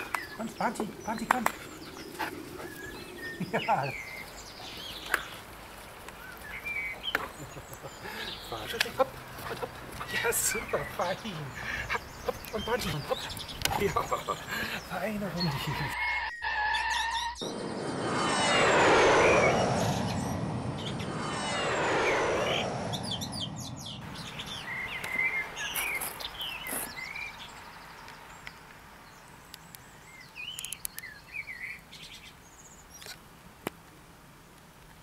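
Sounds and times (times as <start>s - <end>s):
small birds chirping: 0.0s - 17.7s, 22.5s - 33.3s
long sweeping sounds: 17.4s - 24.8s.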